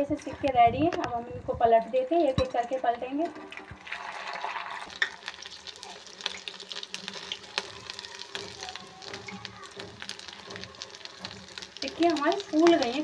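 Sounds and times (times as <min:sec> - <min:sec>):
food sizzling in hot oil: 0:03.4 - 0:13.0
metal spatula turning food: 0:04.8 - 0:13.0.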